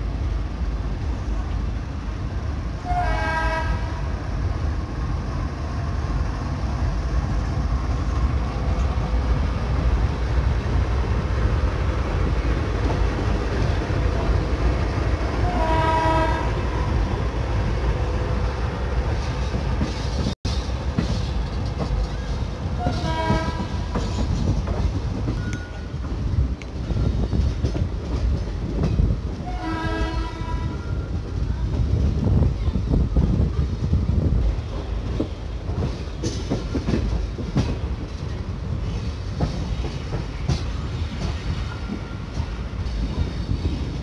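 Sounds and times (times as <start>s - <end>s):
train wheels rumbling on track: 0.0s - 44.0s
locomotive horn blasts: 2.8s - 4.1s, 15.4s - 16.6s, 22.8s - 23.8s, 29.4s - 30.9s.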